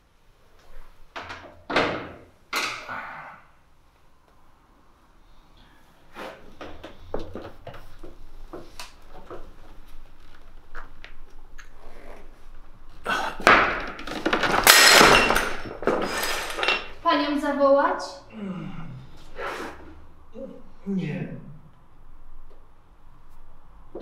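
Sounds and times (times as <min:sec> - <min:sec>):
loud clattering crash: 0:13.5 - 0:16.8.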